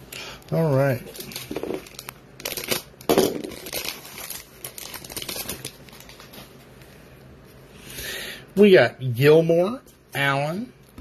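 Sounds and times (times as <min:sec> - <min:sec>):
foil wrapper crinkling and tearing: 0:00.5 - 0:06.6.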